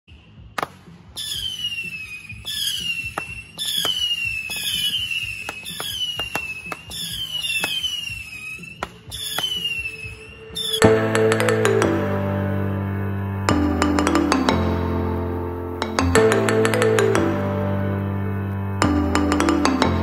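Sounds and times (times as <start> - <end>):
whistling fireworks: 0.1 - 10.9
firework pops and cracks: 0.6 - 10.7.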